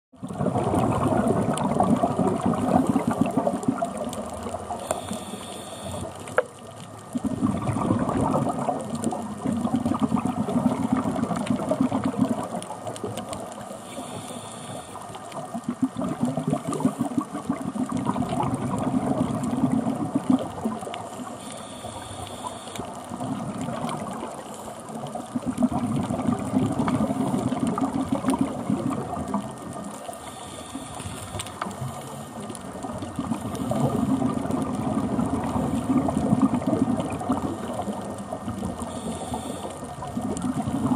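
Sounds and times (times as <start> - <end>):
bubbling exhale: 0.2 - 6.4, 7.1 - 40.9
scuba regulator breathing: 4.6 - 6.4, 13.7 - 15.4, 21.0 - 23.2, 24.3 - 25.1, 29.9 - 32.6, 33.2 - 34.2, 37.6 - 40.9.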